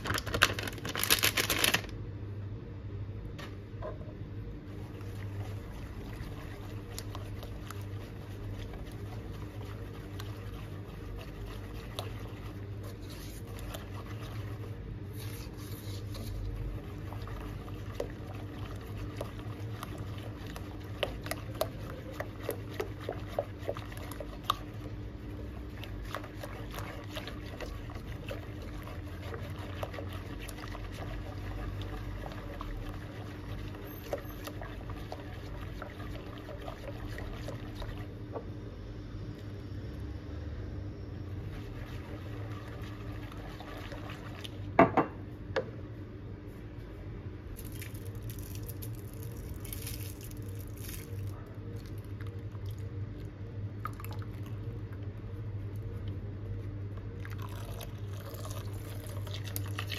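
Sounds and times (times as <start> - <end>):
whisk swishing liquid: 4.6 - 38.5, 41.3 - 44.8, 47.5 - 59.9
whisk clicking on pot: 4.8 - 38.5, 41.4 - 44.8.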